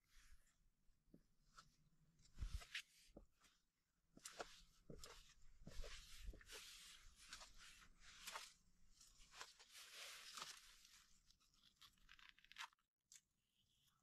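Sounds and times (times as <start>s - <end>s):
twigs crackling and rustling: 9.3s - 12.8s.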